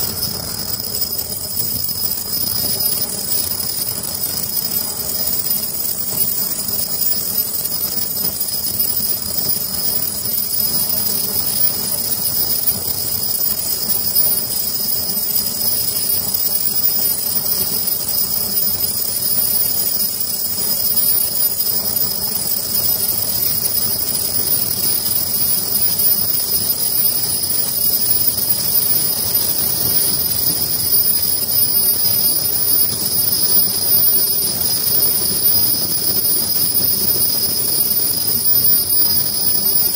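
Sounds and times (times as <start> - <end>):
high-pitched whine: 0.0 - 39.9
machine clatter and hum: 0.0 - 39.9.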